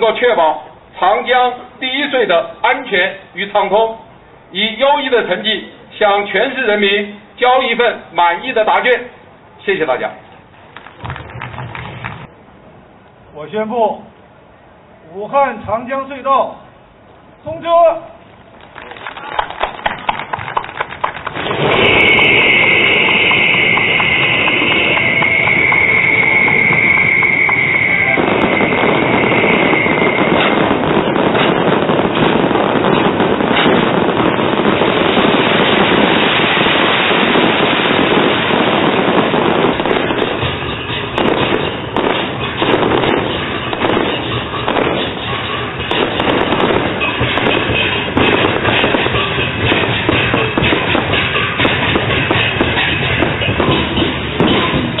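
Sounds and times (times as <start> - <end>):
firecrackers crackling: 7.6 - 12.4, 18.3 - 55.0
applause: 10.7 - 12.3, 18.5 - 22.4
high held tones: 21.6 - 55.0
music: 43.4 - 55.0.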